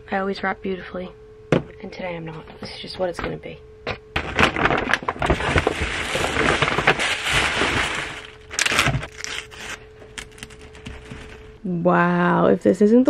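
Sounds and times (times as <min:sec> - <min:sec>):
paper and plastic crinkling: 0:04.2 - 0:11.6.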